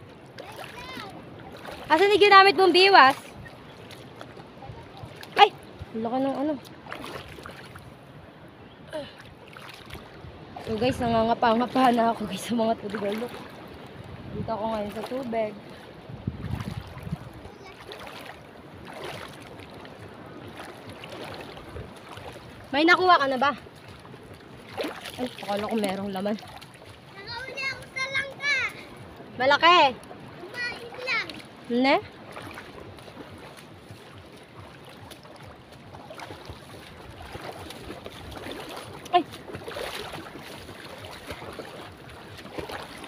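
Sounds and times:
wind rumble on microphone: 0:00.0 - 0:09.0, 0:09.7 - 0:43.0
water sloshing and splashing: 0:00.0 - 0:43.0
wind on microphone: 0:09.8 - 0:22.8.

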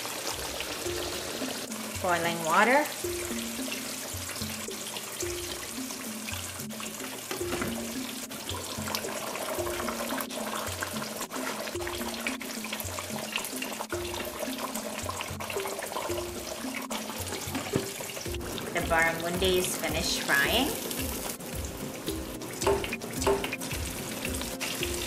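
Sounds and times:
water poured into a wok: 0:00.0 - 0:18.8
background music: 0:00.0 - 0:25.0
curry simmering: 0:00.0 - 0:25.0.

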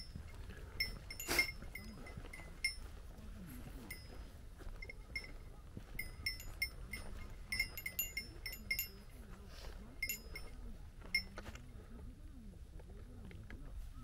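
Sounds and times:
small metal bell jingling: 0:00.0 - 0:03.0, 0:03.6 - 0:09.4, 0:10.0 - 0:11.6.

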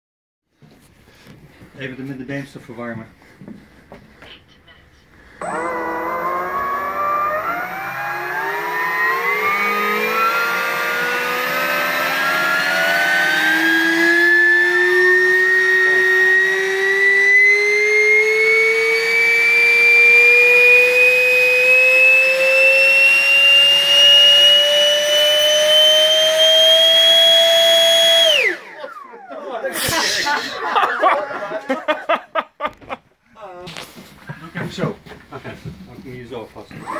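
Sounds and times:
electric ducted fan whine: 0:05.2 - 0:30.0.

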